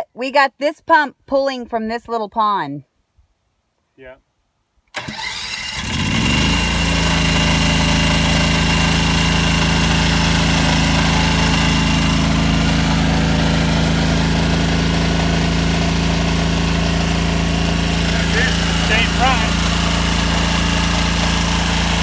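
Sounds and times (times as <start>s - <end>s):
water pump engine running: 5.0s - 22.0s.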